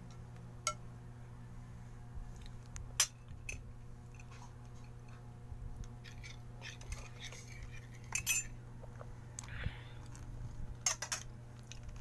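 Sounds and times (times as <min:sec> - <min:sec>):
spoon clatter: 0:06.0 - 0:08.5.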